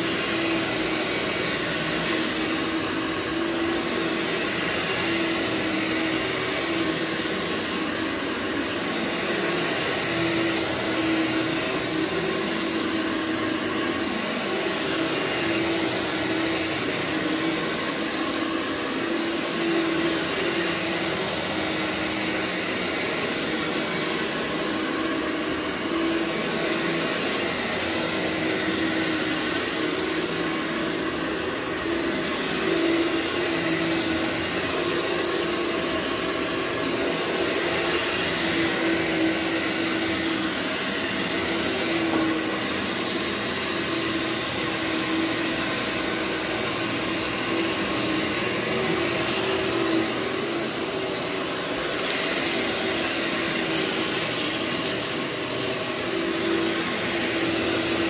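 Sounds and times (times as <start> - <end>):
vacuum cleaner running on carpet: 0.0 - 58.0.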